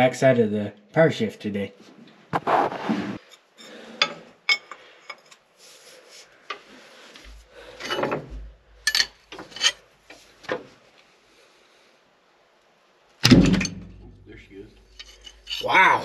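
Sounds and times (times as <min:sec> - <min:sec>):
metal tools clinking and scraping: 0:03.2 - 0:05.5, 0:07.2 - 0:09.9, 0:14.8 - 0:15.8.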